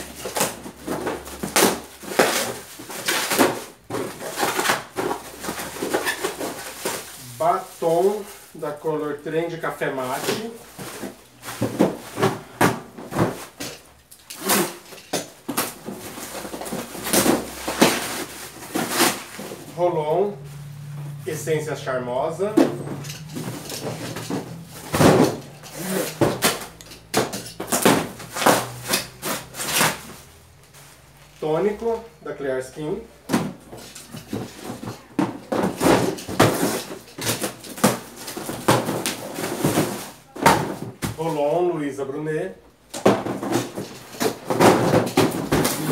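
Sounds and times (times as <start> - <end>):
cardboard boxes scraping and tearing: 0.0 - 8.5, 10.0 - 20.3, 22.4 - 31.2, 33.3 - 41.2, 43.0 - 45.9
cardboard box knocks and scrapes: 10.4 - 13.7, 22.5 - 30.2, 43.0 - 45.9.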